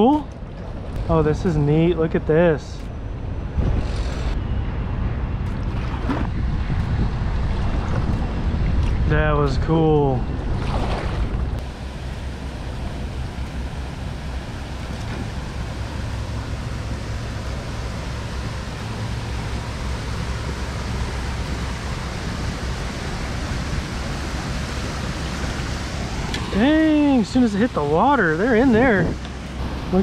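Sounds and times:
wind on microphone: 3.2 - 4.4, 5.6 - 11.7
river water: 7.3 - 30.0.

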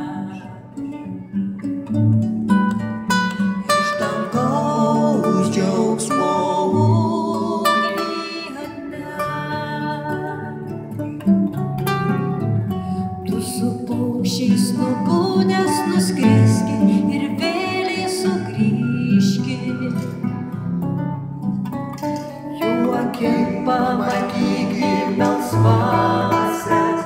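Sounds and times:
person singing: 0.0 - 1.3, 3.6 - 10.6, 13.3 - 20.2, 22.6 - 27.0
acoustic guitars plucking: 0.0 - 27.0.

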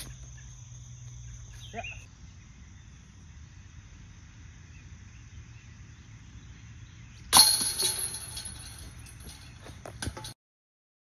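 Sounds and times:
disc striking metal chains: 7.3 - 10.4
chains jingling: 7.4 - 10.3.

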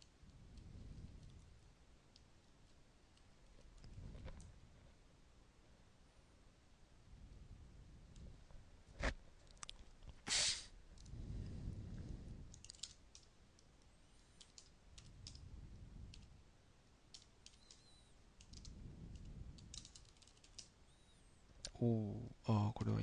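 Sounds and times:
computer keyboard keys clicking: 12.5 - 13.3, 14.4 - 15.4, 17.1 - 20.7.

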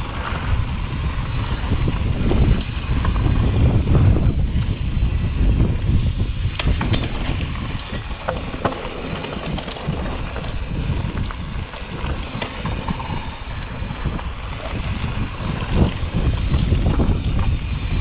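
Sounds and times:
wind buffeting microphone: 0.0 - 18.0
tyres rumbling on gravel: 6.7 - 16.8
sharp clicks and knocks: 6.8 - 13.8.

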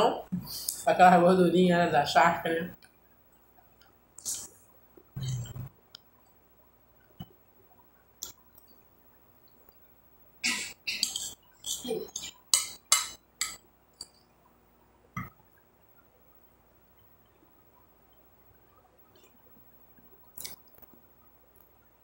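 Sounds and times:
chewing and mouth sounds: 20.2 - 21.0.

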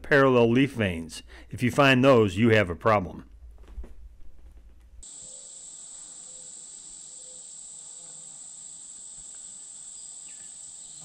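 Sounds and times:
high-pitched insect chorus: 5.0 - 11.0.

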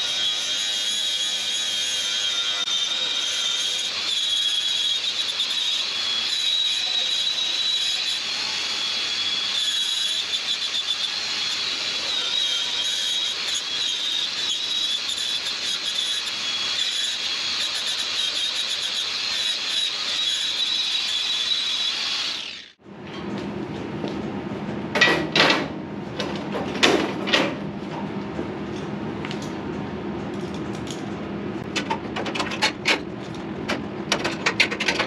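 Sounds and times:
angle grinder grinding steel: 0.0 - 22.8.

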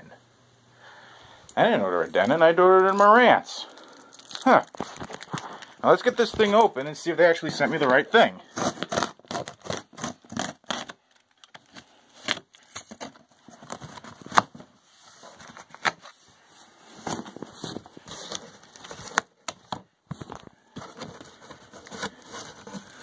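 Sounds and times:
cardboard box being opened: 20.2 - 23.0.

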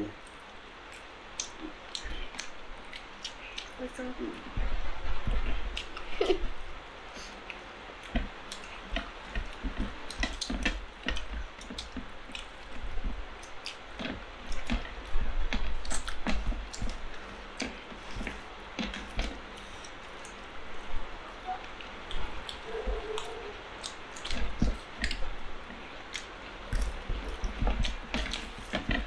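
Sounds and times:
wet chewing smacks: 0.2 - 3.8, 7.2 - 20.5, 21.8 - 29.0
fingers squishing rice: 7.2 - 29.0.

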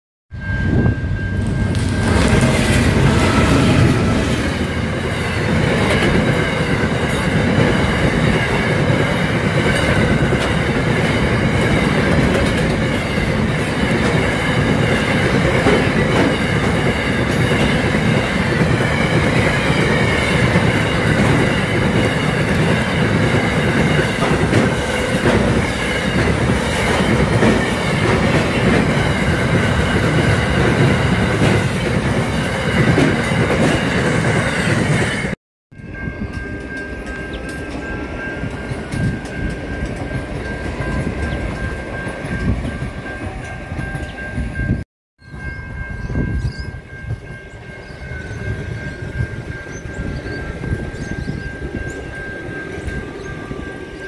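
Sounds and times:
high ringing tone: 0.3 - 54.0
train wheels rumbling on rail: 0.3 - 54.0
wheels clickety-clack: 5.4 - 35.0.

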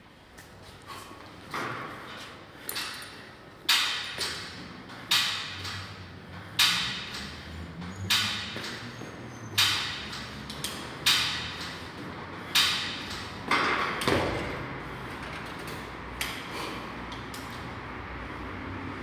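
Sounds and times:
metal pull-up rig clanking: 2.6 - 14.6.

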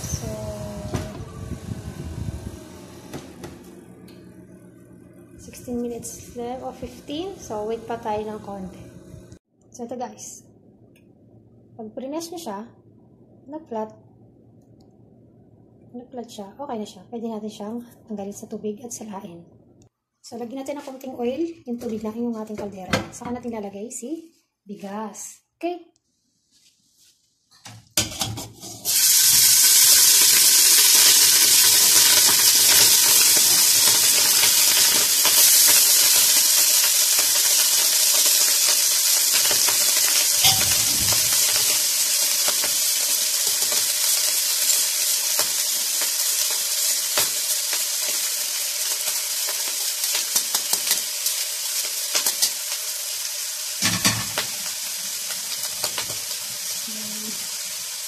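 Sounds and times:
oil sizzling in a pot: 28.0 - 58.0.

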